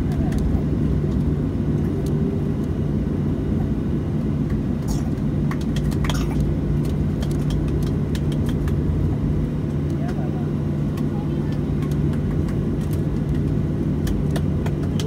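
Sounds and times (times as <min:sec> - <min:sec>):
airplane cabin engine drone: 0:00.0 - 0:15.0.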